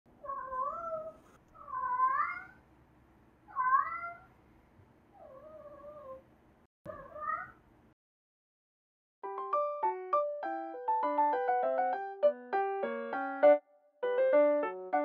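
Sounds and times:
cat meowing: 0.2s - 2.6s, 3.5s - 4.3s.

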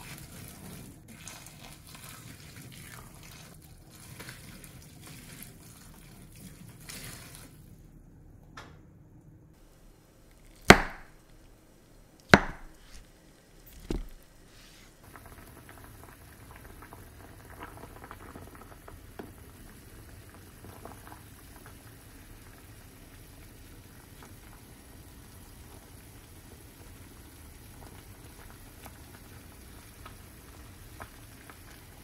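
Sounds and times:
pot boiling and bubbling: 0.0s - 8.2s, 9.8s - 32.0s
sharp knocks: 10.7s - 11.1s, 12.3s - 13.0s.

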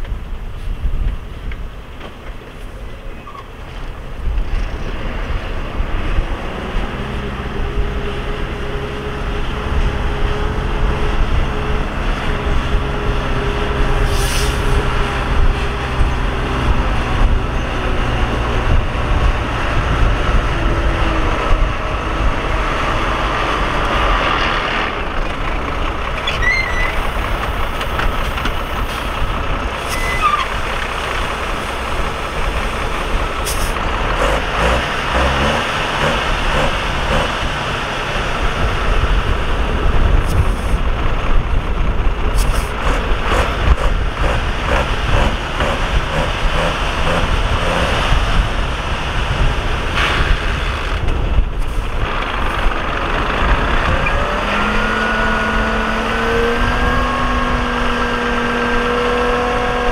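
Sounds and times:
diesel machinery engine rumble: 0.0s - 59.9s
regular ticking: 31.9s - 37.6s, 42.7s - 48.0s.

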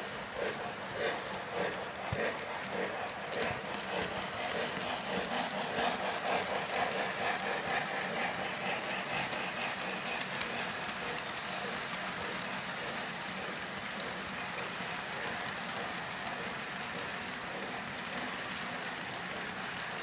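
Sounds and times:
model train engines humming: 0.0s - 20.0s
model train wheels clattering: 0.0s - 20.0s.

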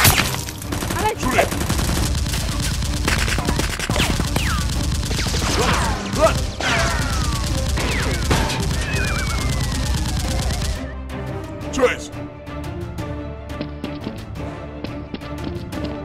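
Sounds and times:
rapid automatic gunfire: 0.6s - 10.8s.

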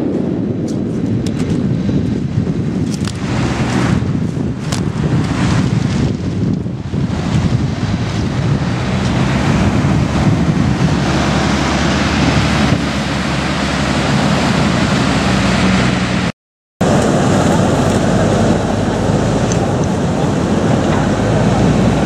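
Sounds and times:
wind blowing on microphone: 0.0s - 22.0s
surf breaking on pebble beach: 16.8s - 22.0s.

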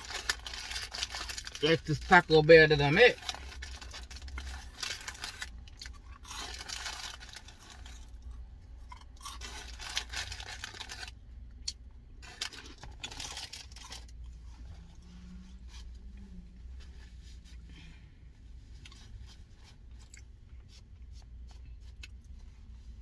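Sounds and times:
paper packaging crinkling: 0.0s - 8.1s, 9.3s - 11.2s, 12.2s - 14.1s
steady low hum: 3.1s - 23.0s.

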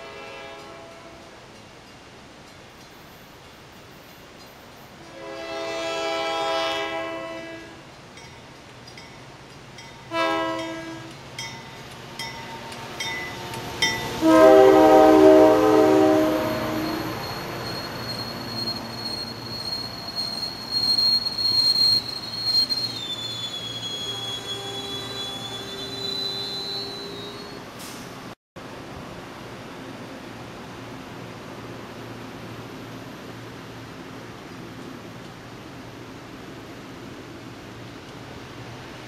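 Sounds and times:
train air horn: 0.0s - 1.3s, 5.0s - 7.8s, 10.1s - 11.1s, 14.0s - 17.2s
train rumble: 0.0s - 39.0s
wheel squeal: 16.8s - 27.7s.

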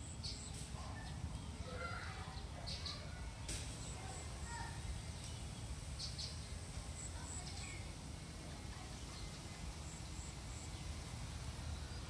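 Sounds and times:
small bird chirping: 0.0s - 7.9s.

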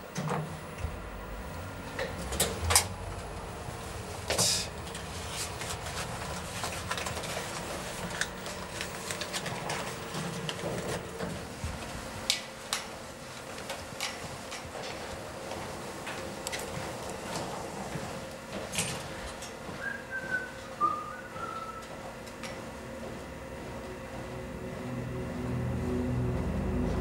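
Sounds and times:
lift steady hum: 0.0s - 27.0s.

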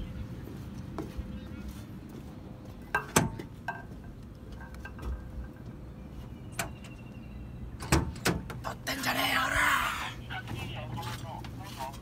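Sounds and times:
vehicle engine rumble: 0.0s - 12.0s.

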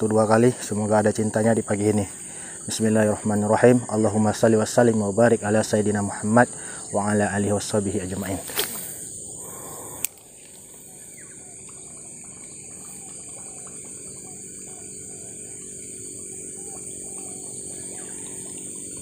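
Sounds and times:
insect chorus buzzing: 0.0s - 19.0s
faint ticks: 9.9s - 19.0s.

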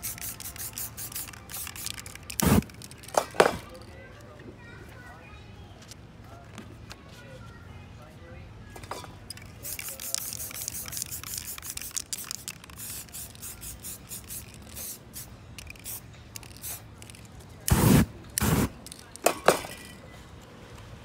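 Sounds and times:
flaming aerosol spray whoosh: 2.4s - 2.7s, 17.7s - 18.8s.

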